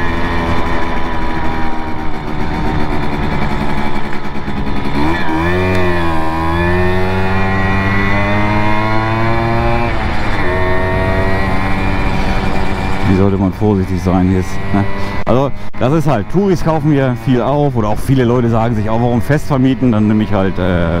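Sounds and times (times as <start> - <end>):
moped engine running: 0.0 - 21.0.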